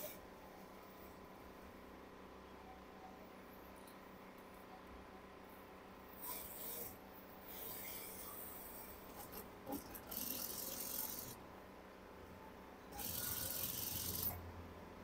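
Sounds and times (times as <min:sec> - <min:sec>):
sewing machine stitching: 0:09.2 - 0:11.4, 0:13.0 - 0:14.4.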